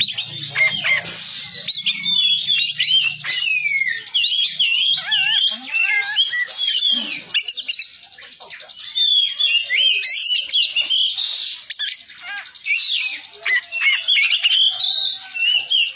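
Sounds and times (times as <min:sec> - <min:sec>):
bird singing whistled notes: 0:00.0 - 0:15.9.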